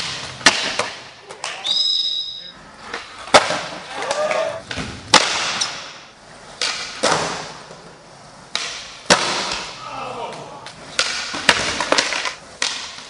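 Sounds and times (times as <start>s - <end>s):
skateboard tail pops and landings: 0.0s - 1.1s, 3.2s - 6.0s, 6.6s - 7.7s, 8.5s - 9.7s, 11.0s - 13.0s
skateboard wheels rolling on concrete: 0.0s - 13.0s.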